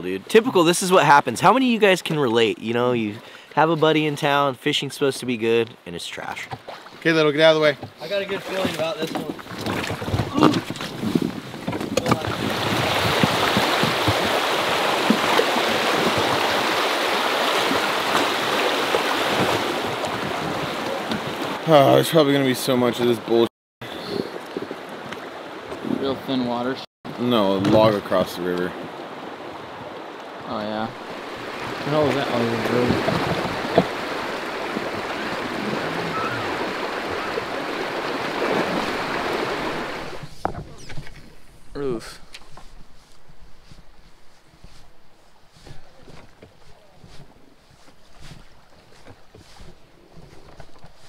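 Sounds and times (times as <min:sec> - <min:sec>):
gear knocking on boat: 0:07.7 - 0:16.6, 0:32.0 - 0:35.0
river water rushing: 0:12.1 - 0:21.8, 0:24.3 - 0:25.8, 0:27.1 - 0:40.3.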